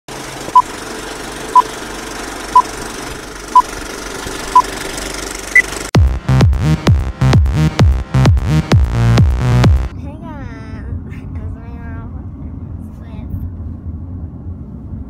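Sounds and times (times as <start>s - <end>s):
electronic music with heavy bass: 6.0s - 9.9s.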